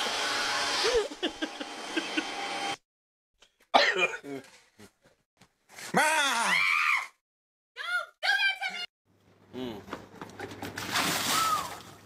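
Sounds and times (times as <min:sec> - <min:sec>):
vacuum cleaner running: 0:00.0 - 0:02.8
person yelling: 0:05.9 - 0:07.1
person crying out startled: 0:06.0 - 0:07.1.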